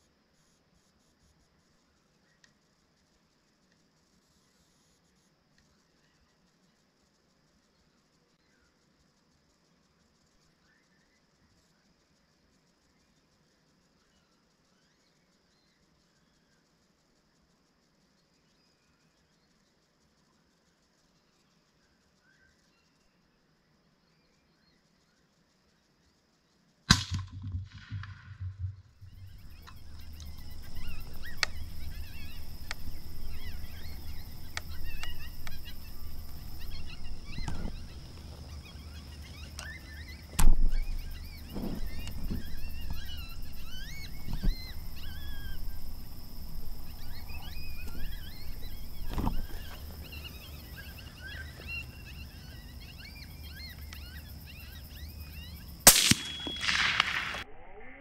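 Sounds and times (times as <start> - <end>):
sharp cracks: 26.9 - 38.6, 39.5 - 50.1, 55.8 - 57.5
low background hum: 27.7 - 57.4
birds chirping and singing: 29.0 - 57.4.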